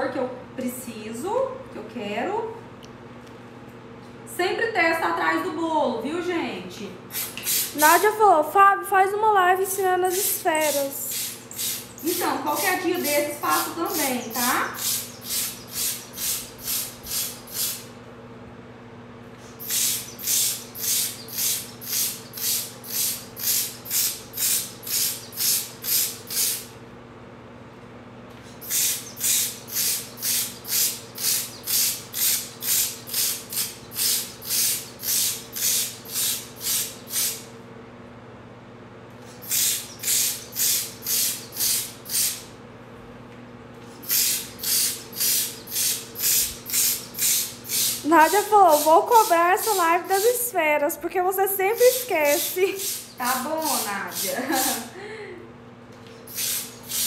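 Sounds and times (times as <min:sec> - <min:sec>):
steady low hum: 0:00.0 - 0:57.0
powder sprayer hissing: 0:07.1 - 0:08.2, 0:10.0 - 0:17.9, 0:19.6 - 0:26.7, 0:28.6 - 0:37.5, 0:39.4 - 0:42.4, 0:44.0 - 0:50.5, 0:51.5 - 0:54.9, 0:56.3 - 0:57.0.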